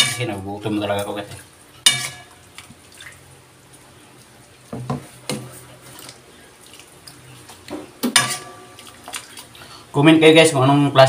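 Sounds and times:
liquid sloshing and dripping: 1.3 - 9.8.

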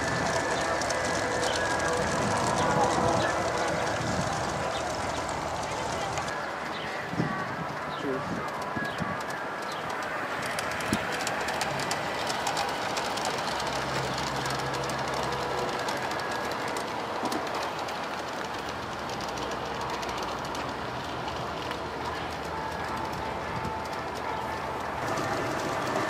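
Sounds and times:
model train wheels clacking: 0.0 - 26.0.

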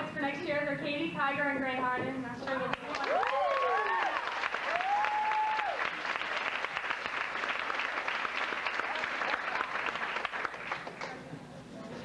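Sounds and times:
audience applauding: 2.7 - 11.2.

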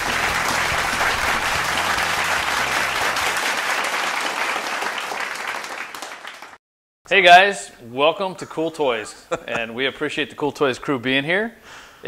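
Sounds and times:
intro music: 0.0 - 3.4
applause: 0.0 - 6.6.

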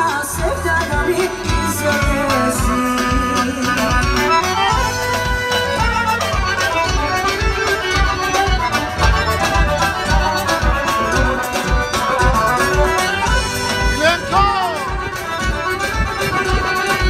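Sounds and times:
folk dance music: 0.0 - 17.0.

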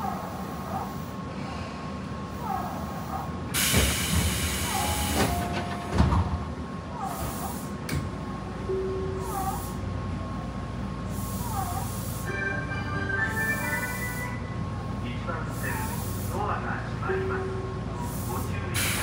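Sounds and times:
train equipment hum: 0.0 - 19.0
train door hiss: 3.5 - 6.2, 7.0 - 7.9, 13.3 - 14.4, 15.5 - 16.5, 18.0 - 19.0.

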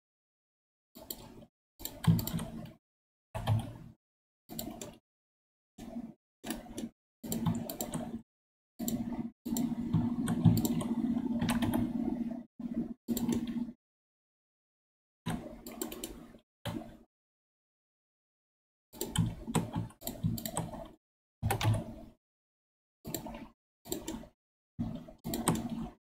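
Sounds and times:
clicky keyboard typing: 1.0 - 2.8, 3.4 - 3.9, 4.5 - 5.0, 5.8 - 8.2, 8.8 - 12.2, 13.1 - 13.7, 15.3 - 17.0, 19.0 - 22.0, 23.1 - 26.0.

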